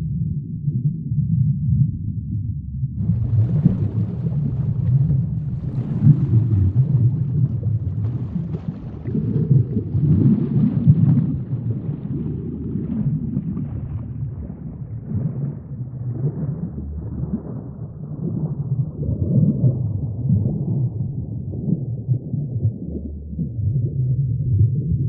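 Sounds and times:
underwater rumbling wash: 0:00.0 - 0:25.0.

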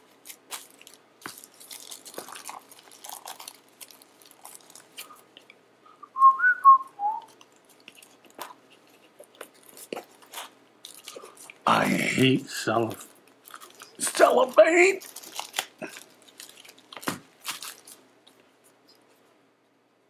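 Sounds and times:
cellophane crinkling: 0:00.0 - 0:05.5, 0:07.2 - 0:11.8, 0:12.7 - 0:19.1
person whistling: 0:06.0 - 0:07.3.

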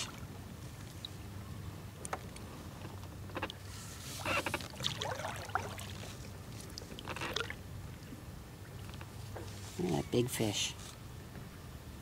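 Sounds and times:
paddle splashing in water: 0:04.0 - 0:07.6.

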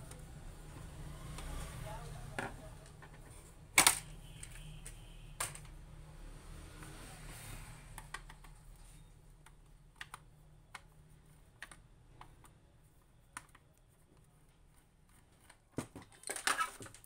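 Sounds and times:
plastic clicks and taps: 0:07.9 - 0:08.6, 0:09.4 - 0:10.9.

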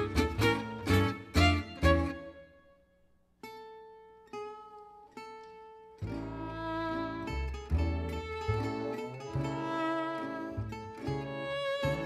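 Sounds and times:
plucked double bass: 0:00.0 - 0:02.4, 0:06.0 - 0:12.0
violin melody: 0:00.0 - 0:02.8, 0:06.0 - 0:12.0.

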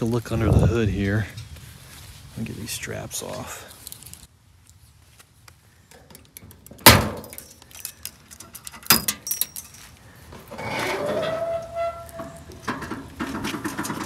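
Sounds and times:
metal strap hooks clinking: 0:05.9 - 0:10.0.

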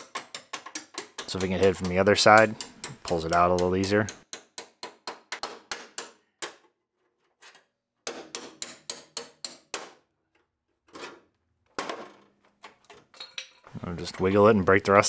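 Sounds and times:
hammer striking chisel on metal: 0:00.0 - 0:06.6, 0:08.0 - 0:10.0.

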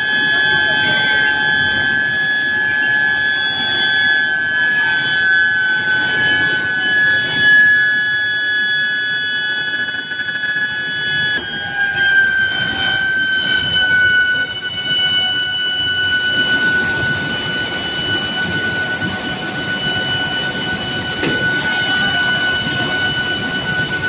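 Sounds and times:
induction furnace high-pitched whine: 0:00.0 - 0:24.0
roller conveyor rumble: 0:13.4 - 0:24.0.

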